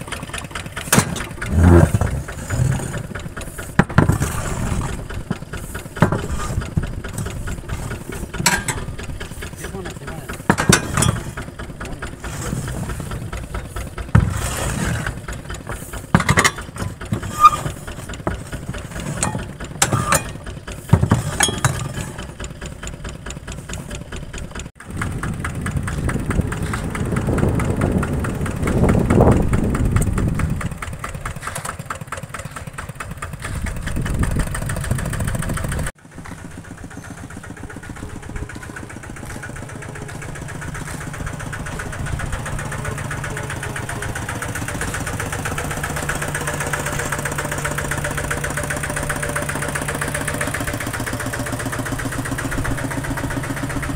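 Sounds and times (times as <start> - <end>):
vehicle engine running: 0.0 - 53.9
sharp knocks or clanks: 0.8 - 22.7.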